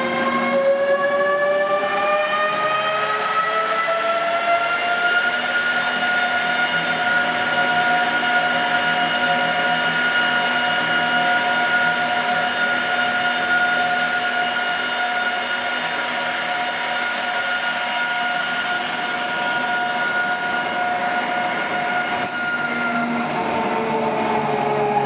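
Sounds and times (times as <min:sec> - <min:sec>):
mixer machine drone: 0:00.0 - 0:25.0.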